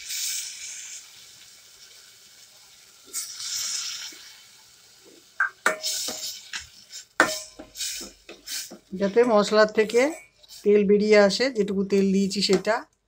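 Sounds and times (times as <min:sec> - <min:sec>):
water hissing in hot pot: 0:00.0 - 0:10.8
steel spoon scraping pot: 0:05.7 - 0:10.8.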